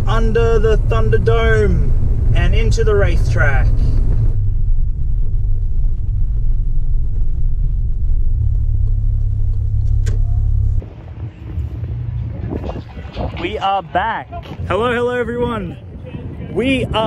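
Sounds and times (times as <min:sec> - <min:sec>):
car driving from inside cabin: 0:00.0 - 0:13.4.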